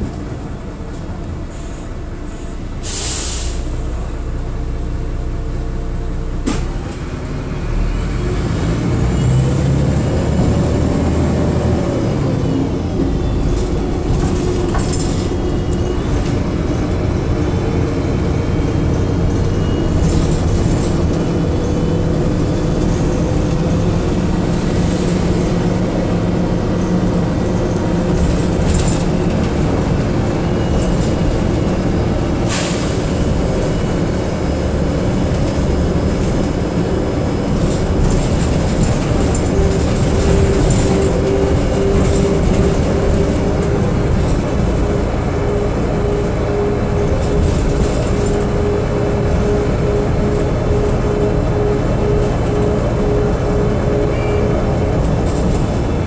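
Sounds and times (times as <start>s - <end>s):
bus engine drone: 0.0s - 56.0s
road noise: 0.0s - 56.0s.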